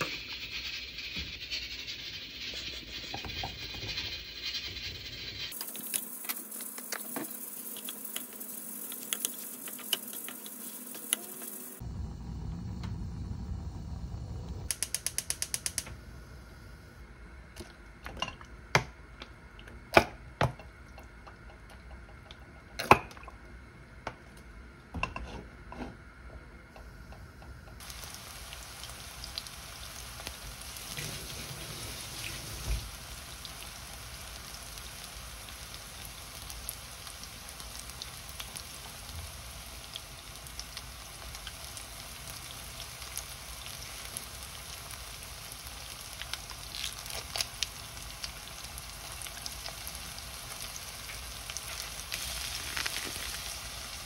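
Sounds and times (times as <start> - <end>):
onions sizzling in oil: 0.0 - 11.9, 27.8 - 54.0
sharp clicks and knocks: 14.7 - 15.9.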